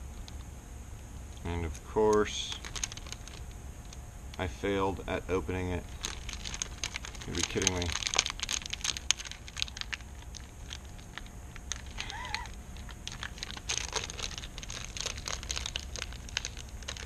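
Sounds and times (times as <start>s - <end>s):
plastic bag crinkling: 2.3s - 3.5s, 5.8s - 17.0s.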